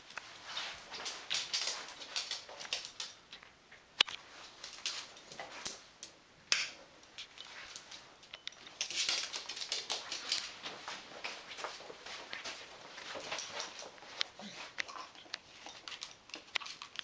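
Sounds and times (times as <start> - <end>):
dog moving about: 0.4 - 3.2, 7.2 - 17.0.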